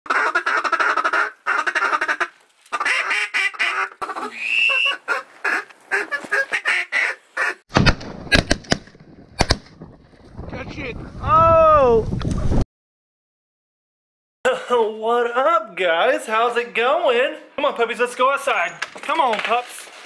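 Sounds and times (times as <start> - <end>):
duck calls quacking: 0.1 - 7.6
shotgun shots: 7.7 - 9.8.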